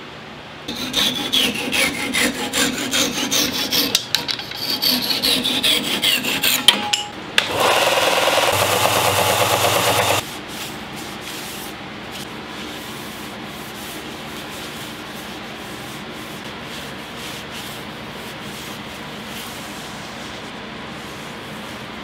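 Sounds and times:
belt sander running: 7.5 - 10.2
cloth rubbing on wood: 10.2 - 22.0.

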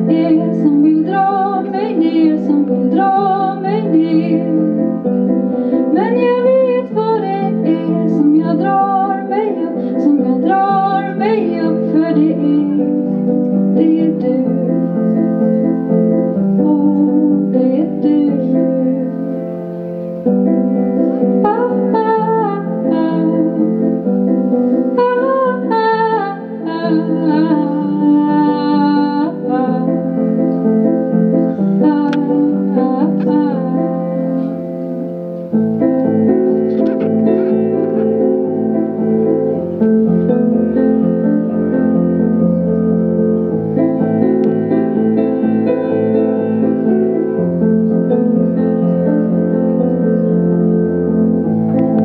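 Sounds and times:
woman singing into microphone: 0.0 - 5.0, 5.9 - 15.4, 16.5 - 19.5, 21.4 - 24.0, 25.0 - 30.2, 31.8 - 34.7
instrumental held chords: 0.0 - 52.0.

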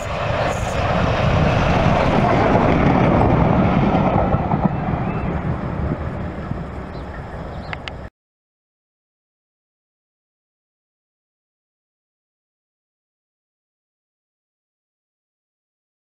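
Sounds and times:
steam train passing at speed: 0.0 - 8.1.

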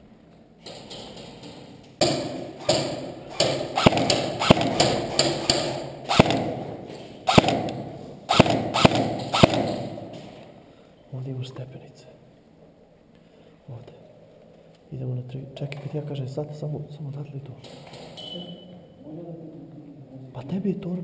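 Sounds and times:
airsoft gun shots echoing: 2.0 - 10.4.

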